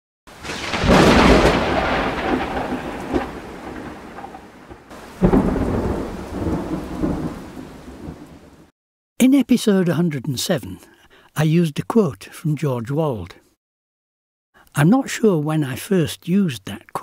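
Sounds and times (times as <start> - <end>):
steady rain: 0.3 - 8.7
thunder rolling: 0.3 - 8.7.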